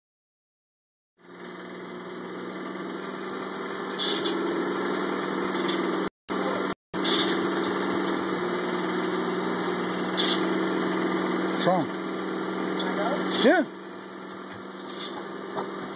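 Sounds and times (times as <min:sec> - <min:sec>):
car engine idling: 0:01.2 - 0:15.9.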